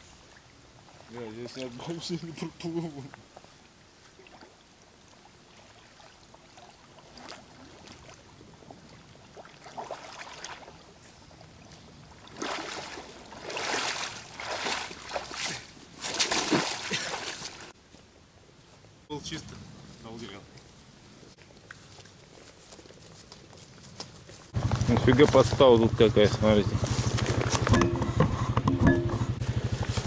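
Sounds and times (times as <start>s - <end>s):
muddy water sloshing and splashing: 0.0s - 17.8s.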